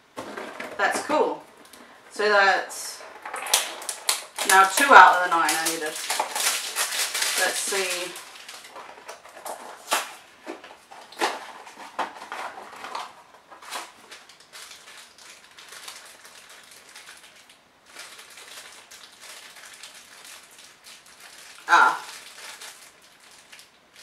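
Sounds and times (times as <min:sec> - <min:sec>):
foil bag crinkling: 0:00.0 - 0:24.0
cardboard box tearing: 0:03.3 - 0:10.2.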